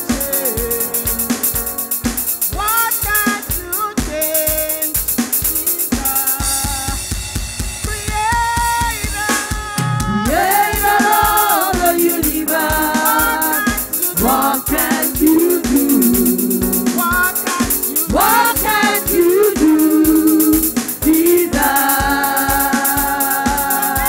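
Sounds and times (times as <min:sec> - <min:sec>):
drum kit beat: 0:00.0 - 0:24.0
women singing gospel: 0:10.0 - 0:24.0.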